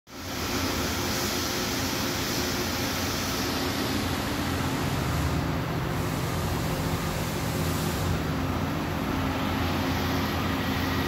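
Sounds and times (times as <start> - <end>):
lathe mechanical hum: 0.1 - 11.0.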